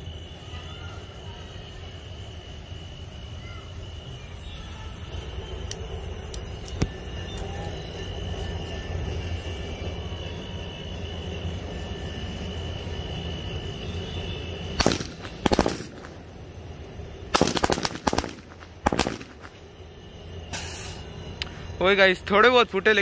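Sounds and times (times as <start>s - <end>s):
steady low rumble: 3.9s - 22.8s
firecrackers bursting: 13.2s - 21.4s.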